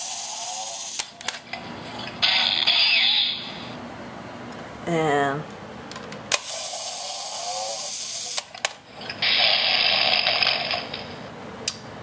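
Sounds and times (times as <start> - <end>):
toy tractors whirring: 0.0 - 1.1, 6.4 - 11.2.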